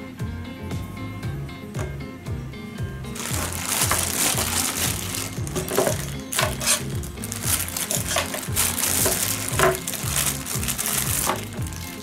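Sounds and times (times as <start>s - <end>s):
background music with bass line: 0.0s - 12.0s
plastic bag crinkling: 3.2s - 12.0s.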